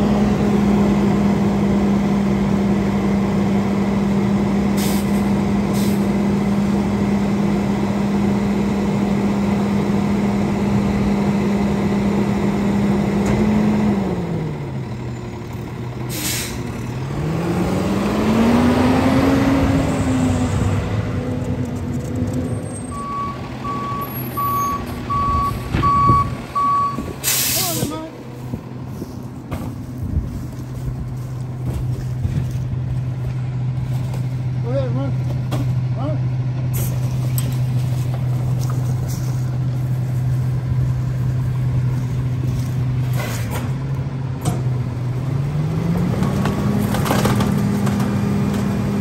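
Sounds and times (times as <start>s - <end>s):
garbage truck engine revving: 0.0s - 30.1s, 35.3s - 49.0s
backup beeps: 22.9s - 27.0s.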